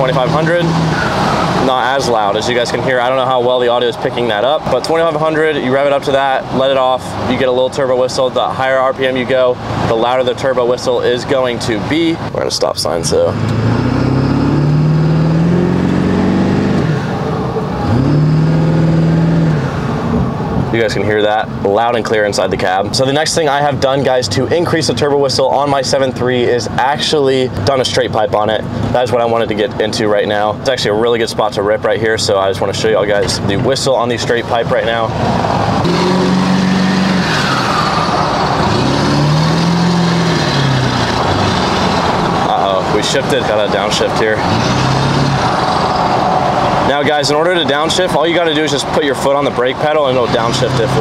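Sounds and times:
diesel engine revving: 0.0 - 20.7, 32.7 - 51.0
turbocharger whistle: 35.8 - 41.7.

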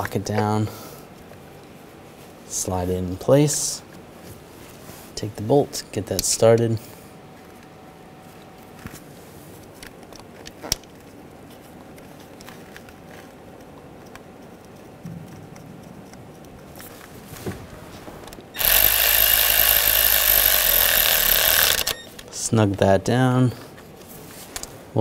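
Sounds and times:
hand-work noises: 8.6 - 22.8
cordless electric ratchet running: 18.6 - 22.1
sharp click: 18.6 - 22.3.

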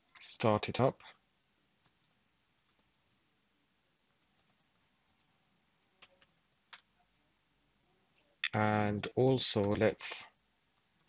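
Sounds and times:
keyboard typing: 2.7 - 2.9, 4.2 - 6.9.

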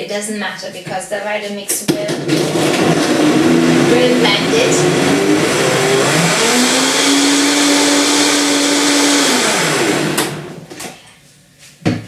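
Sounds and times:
blender motor running: 2.1 - 10.8.

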